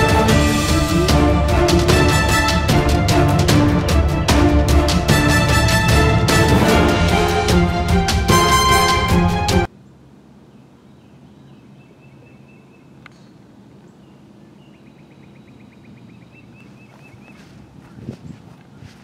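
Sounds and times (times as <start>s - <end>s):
background music: 0.0s - 9.7s
birds calling: 9.7s - 19.0s.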